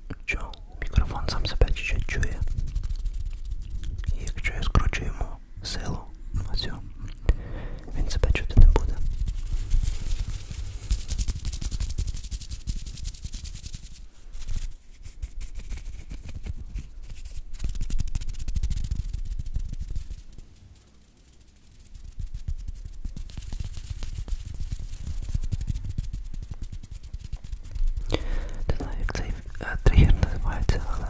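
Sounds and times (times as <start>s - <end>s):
low rumble of air on microphone: 0.0s - 12.3s, 22.1s - 31.0s
hands rubbing at a microphone: 0.3s - 6.8s, 7.9s - 31.0s.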